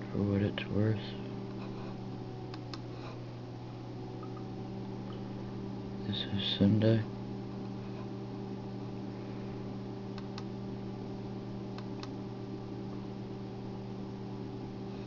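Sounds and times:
low electrical hum: 0.0s - 15.0s
computer mouse clicks: 10.2s - 10.5s, 11.8s - 12.2s.

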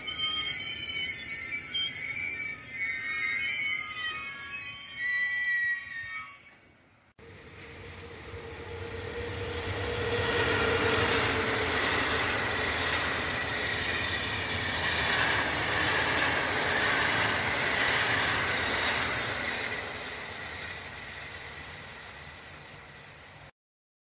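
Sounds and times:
high wavering whine: 0.0s - 23.5s
wheels rumbling on rail: 7.2s - 23.5s.

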